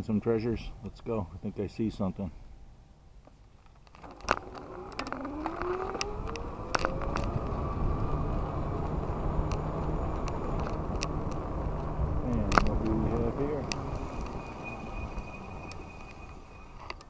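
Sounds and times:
wind and tyre noise: 2.4 - 17.0
bike clicks and rattles: 3.3 - 14.3
electric motor whine: 3.9 - 17.0.

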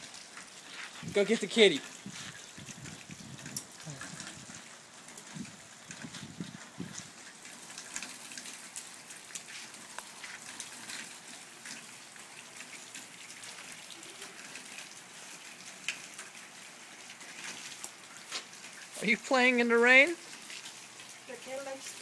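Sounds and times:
raindrops ticking: 0.0 - 22.0
steady rain falling: 0.0 - 22.0.

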